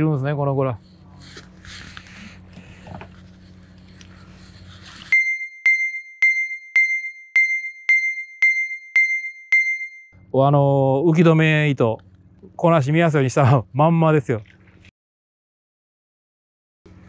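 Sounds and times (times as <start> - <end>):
electronic ding: 5.1 - 10.2.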